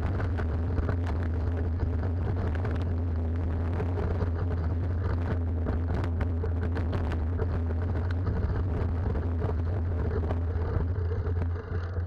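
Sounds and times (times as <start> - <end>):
wind rumble on microphone: 0.0 - 12.0
bike rattles and clicks: 3.7 - 12.0.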